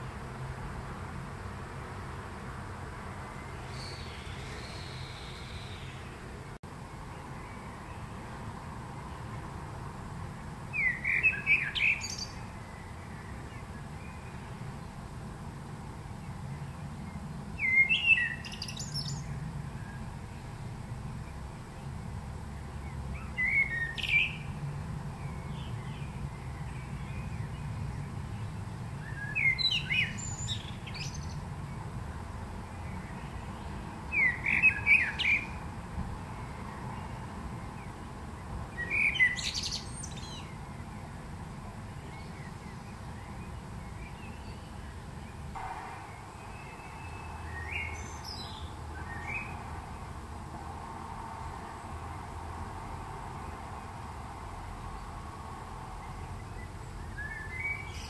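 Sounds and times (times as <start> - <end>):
blackbird singing: 3.4 - 6.2, 10.7 - 14.6, 17.6 - 20.1, 22.8 - 24.6, 25.2 - 31.4, 32.8 - 35.6, 38.7 - 40.8, 42.0 - 45.4, 46.0 - 49.6, 56.0 - 58.0.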